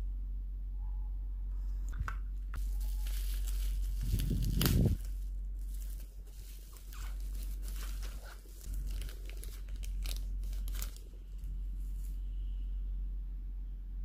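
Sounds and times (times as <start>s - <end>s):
plastic packaging crinkling: 2.6s - 12.2s.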